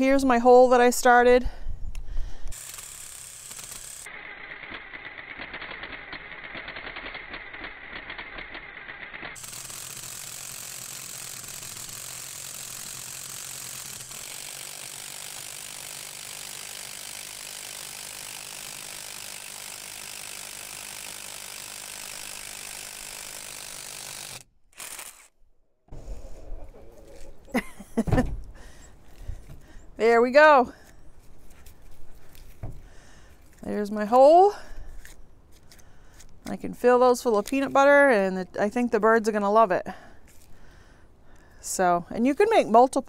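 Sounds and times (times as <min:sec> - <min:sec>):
cordless drill boring into log: 0:02.5 - 0:25.3.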